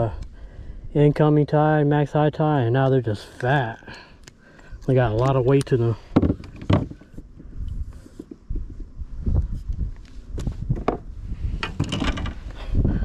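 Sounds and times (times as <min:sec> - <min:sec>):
low thumps and knocks in kayak: 0:06.1 - 0:07.0, 0:10.7 - 0:12.4.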